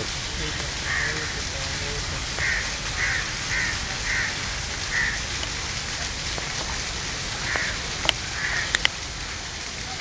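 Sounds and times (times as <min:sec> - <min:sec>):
steady outdoor hiss: 0:00.0 - 0:10.0
crow cawing: 0:00.8 - 0:01.4, 0:02.4 - 0:05.3, 0:07.4 - 0:08.8.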